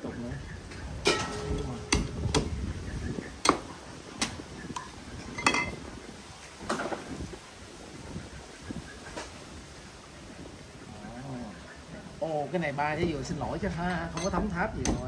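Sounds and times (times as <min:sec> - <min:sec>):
cleaver hacking coconut: 0:01.2 - 0:02.5, 0:03.4 - 0:04.4.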